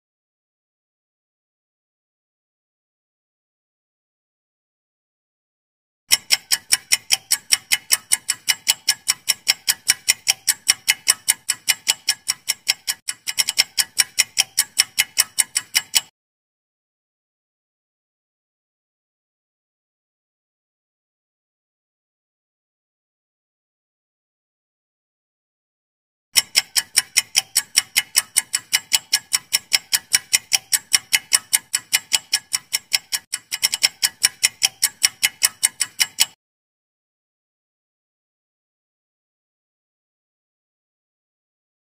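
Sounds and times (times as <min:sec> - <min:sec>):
clock ticking: 0:06.1 - 0:16.1, 0:26.4 - 0:36.4.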